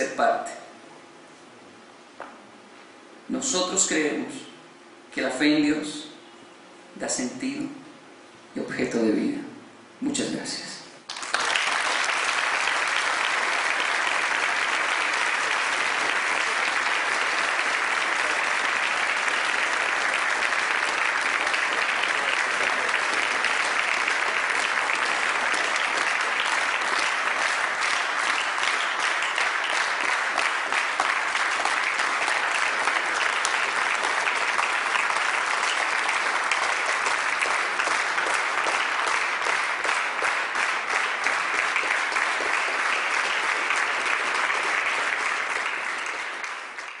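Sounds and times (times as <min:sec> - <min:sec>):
audience applauding: 0:11.1 - 0:47.0.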